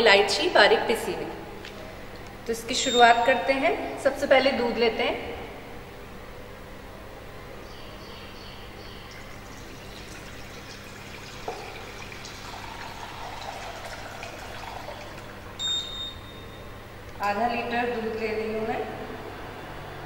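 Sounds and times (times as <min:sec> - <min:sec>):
milk pouring into saucepan: 0:09.0 - 0:15.7.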